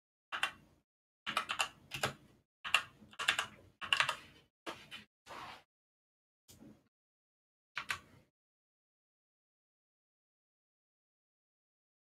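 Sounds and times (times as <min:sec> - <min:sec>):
typing on computer keyboard: 0:00.3 - 0:00.6, 0:01.3 - 0:04.2, 0:07.8 - 0:08.1.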